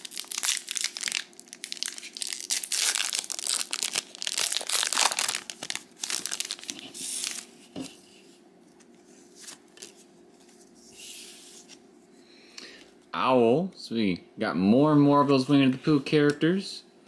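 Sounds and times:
foil wrapper crinkling and tearing: 0.0 - 7.5.

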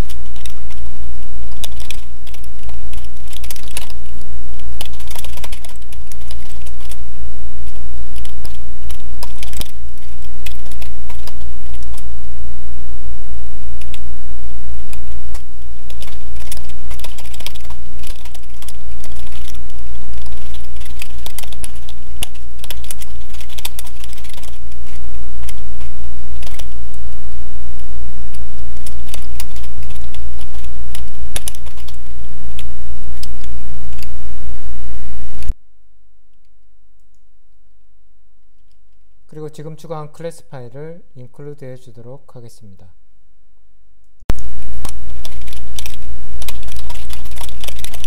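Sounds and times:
computer keyboard typing: 0.0 - 0.8, 1.5 - 4.2, 4.8 - 7.0, 7.6 - 12.1, 13.8 - 14.0, 14.9 - 26.8, 28.8 - 32.0, 44.8 - 48.0
loud steady low hum: 0.0 - 41.4, 42.8 - 48.0.

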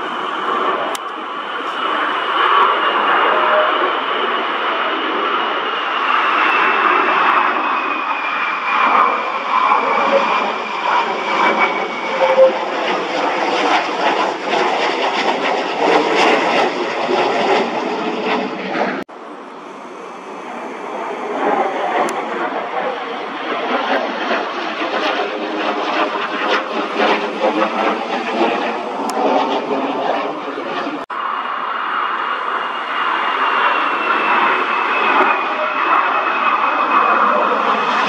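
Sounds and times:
jet flying low overhead: 0.0 - 38.0
quieter jet noise: 0.0 - 38.0.

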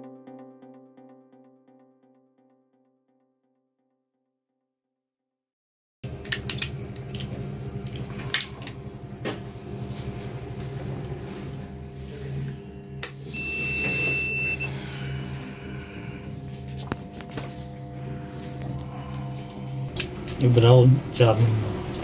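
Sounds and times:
low electrical hum: 6.0 - 22.0
high electronic beep: 13.4 - 14.7.

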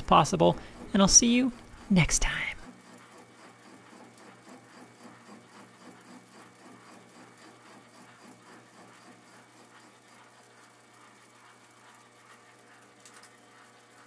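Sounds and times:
low steady hum: 0.0 - 2.7.

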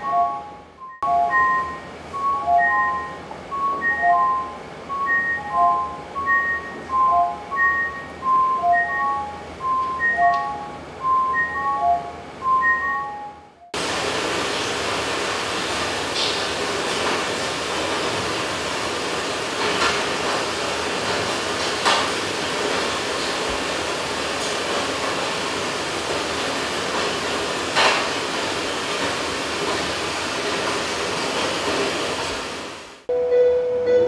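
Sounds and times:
heavy rain: 13.8 - 21.6.

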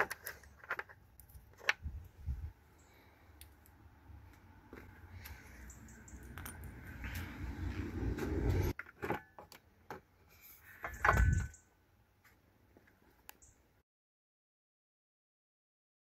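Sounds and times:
knocks and scrapes of handling: 0.0 - 2.4, 6.4 - 11.6.

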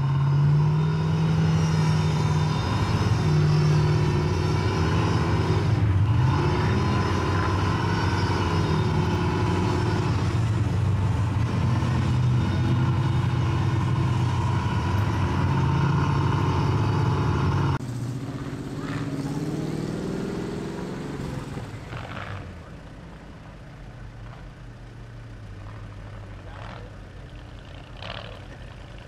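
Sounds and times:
buggy engines running loud: 0.0 - 29.0
engine idling: 20.8 - 29.0.

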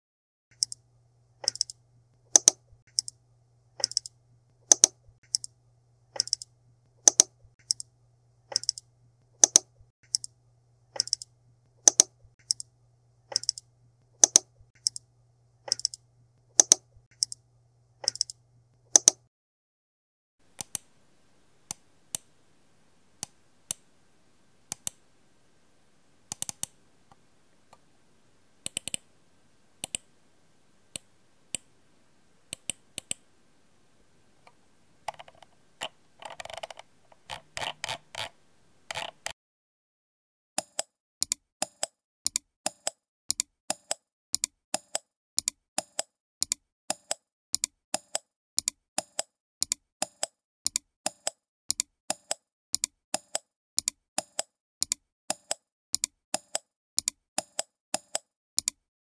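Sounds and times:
computer mouse buttons clicking: 0.5 - 0.8, 1.4 - 3.2, 3.8 - 7.9, 8.5 - 12.7, 13.3 - 17.4, 18.0 - 19.3, 20.6 - 20.9, 21.7 - 22.3, 24.7 - 25.0, 26.3 - 27.8, 28.6 - 29.1, 29.8 - 30.1, 32.5 - 33.2, 34.4 - 39.4, 40.6 - 58.8.

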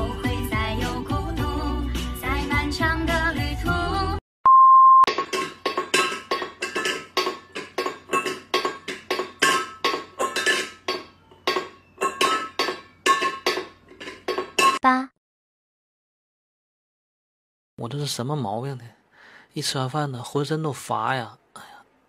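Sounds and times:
background music: 0.0 - 4.2
steady beep: 4.5 - 5.1
metal bowl clinking: 5.1 - 14.8.

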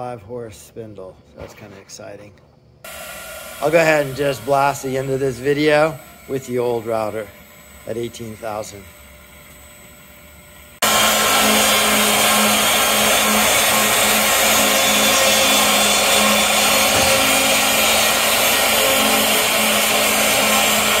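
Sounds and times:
router cutting plywood: 2.9 - 8.6, 10.8 - 21.0
low machine hum: 2.9 - 21.0.

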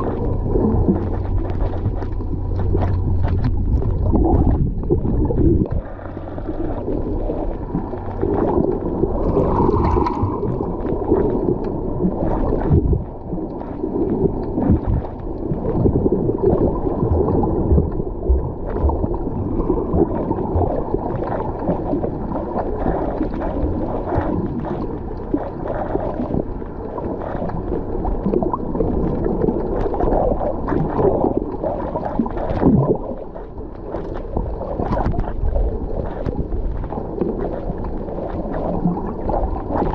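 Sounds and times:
faint bubbly ticks: 0.0 - 39.9
underwater rumble and sloshing: 0.0 - 39.9.

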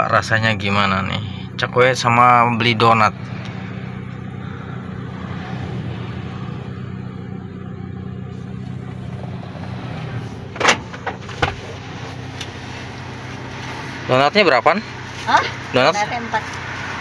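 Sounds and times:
car engine idling: 0.0 - 17.0
car door latch click: 10.6 - 11.6.

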